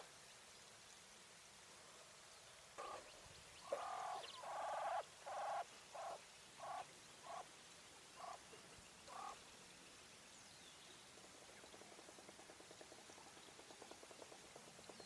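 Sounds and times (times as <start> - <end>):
quail calling: 2.8 - 3.0, 3.6 - 7.4, 8.2 - 8.4, 9.1 - 9.4.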